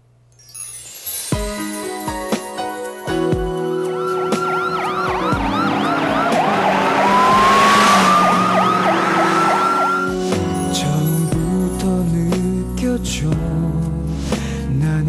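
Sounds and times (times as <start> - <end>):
police sirens wailing and yelping: 3.6 - 10.3
rushing noise: 3.9 - 10.4
soft song: 10.1 - 15.0.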